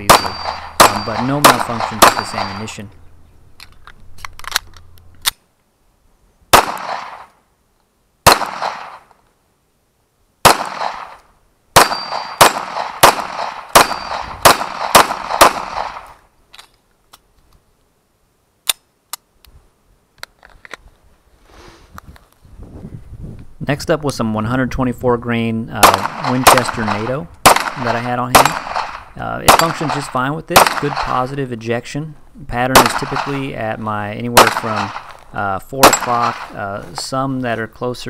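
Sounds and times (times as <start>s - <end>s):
pistol shots: 0.0s - 2.8s, 6.5s - 7.3s, 8.2s - 9.1s, 10.4s - 11.2s, 11.8s - 16.2s, 25.8s - 31.3s, 32.7s - 33.6s, 34.3s - 35.2s, 35.8s - 36.6s
pistol reloading clicks: 3.6s - 5.5s, 18.6s - 19.3s.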